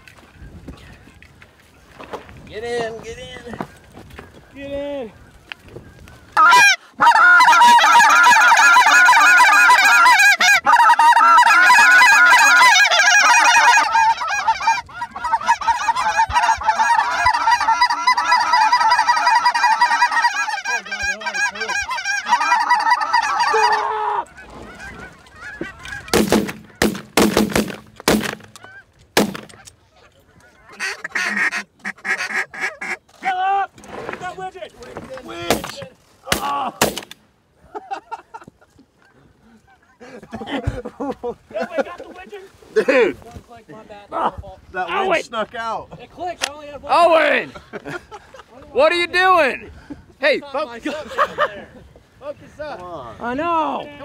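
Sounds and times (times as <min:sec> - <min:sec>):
goose calls honking and clucking: 0:06.4 - 0:33.1.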